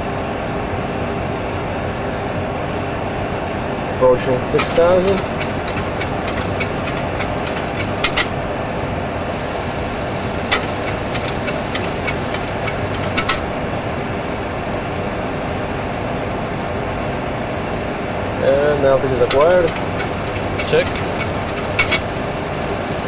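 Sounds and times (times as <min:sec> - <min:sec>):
simulated engine and airflow noise: 0:00.0 - 0:23.0
sharp clicks: 0:04.6 - 0:08.4, 0:10.2 - 0:13.6, 0:19.2 - 0:22.4.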